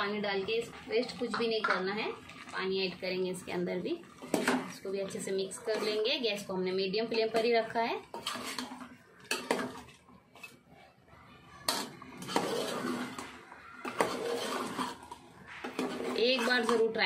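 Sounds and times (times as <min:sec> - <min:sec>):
spatula scraping pot sides: 0:04.1 - 0:10.7, 0:11.6 - 0:17.0.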